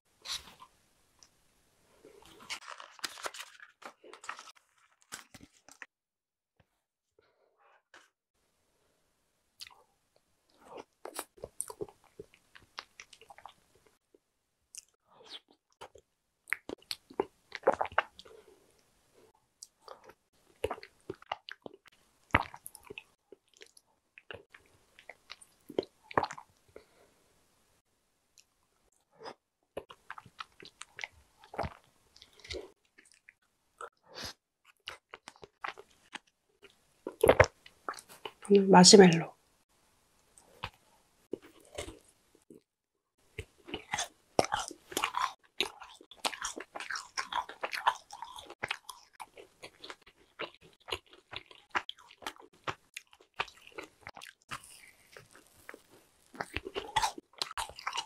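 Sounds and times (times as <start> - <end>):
mouth smacks and chewing: 9.6 - 9.8, 10.5 - 13.6, 14.7 - 18.4, 19.6 - 26.6, 40.3 - 42.6, 43.3 - 58.0.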